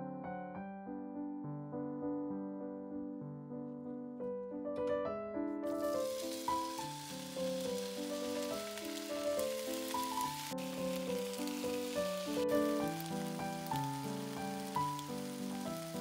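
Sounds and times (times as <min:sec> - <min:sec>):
piano music: 0:00.0 - 0:16.0
bacon sizzling in a pan: 0:05.7 - 0:16.0.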